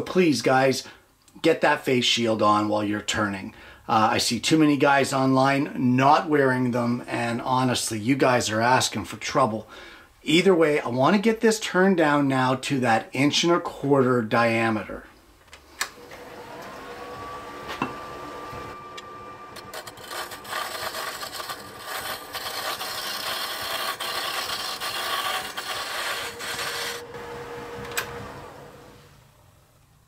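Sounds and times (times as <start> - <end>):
lathe motor whine: 16.0 - 29.4
turning tool shaving wood: 16.2 - 28.7.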